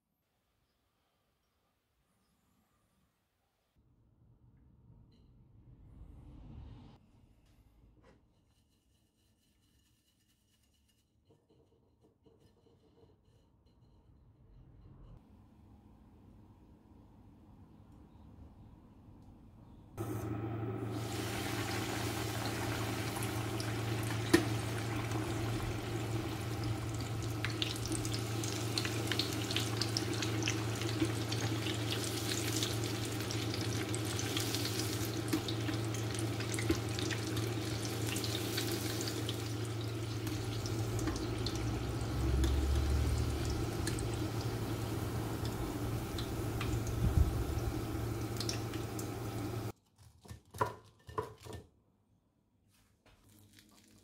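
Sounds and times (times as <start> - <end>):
low hum: 20.0 - 49.7
oil bubbling and sizzling: 20.3 - 49.7.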